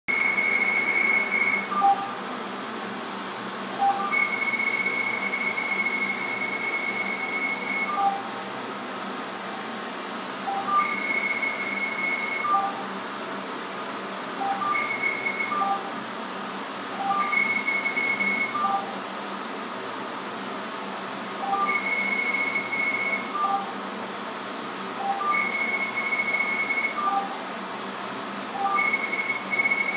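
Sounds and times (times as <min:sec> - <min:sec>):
high steady laser beep: 0:00.1 - 0:02.2, 0:03.8 - 0:08.4, 0:10.4 - 0:12.8, 0:14.4 - 0:15.9, 0:17.0 - 0:19.0, 0:21.4 - 0:23.8, 0:25.0 - 0:27.4, 0:28.6 - 0:29.9
machine hiss: 0:00.1 - 0:29.9.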